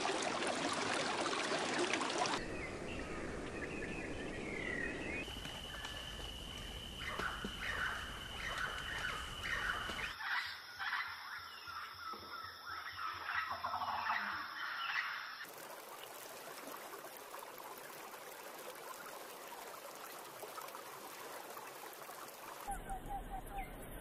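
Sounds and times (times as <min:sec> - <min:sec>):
running water hiss: 0:00.0 - 0:10.2, 0:12.7 - 0:24.0
birds calling: 0:02.4 - 0:15.4
faint chirps: 0:02.4 - 0:15.5, 0:22.6 - 0:24.0.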